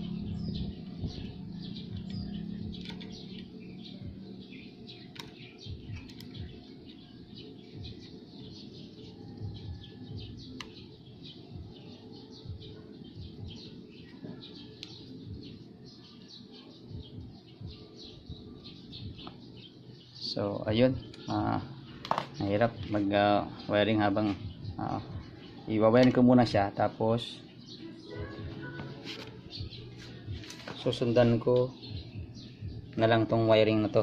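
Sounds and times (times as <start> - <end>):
small birds chirping: 0.0 - 34.0
sharp clicks: 2.8 - 3.5, 5.1 - 6.4.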